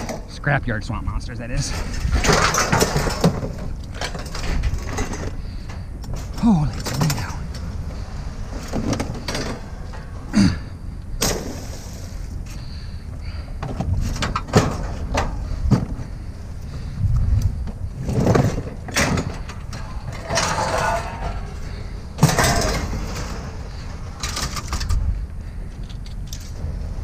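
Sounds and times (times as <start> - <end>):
low rumble of vehicles: 0.0 - 27.0
scraping and rattling: 1.6 - 12.8, 17.8 - 25.1
metal knocks and clatters: 1.7 - 5.4, 13.6 - 16.0, 18.0 - 25.0.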